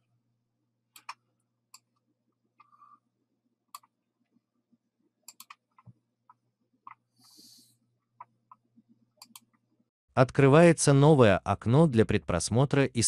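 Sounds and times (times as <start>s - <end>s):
computer mouse clicks: 0.9s - 1.9s, 5.2s - 6.0s, 8.2s - 9.6s.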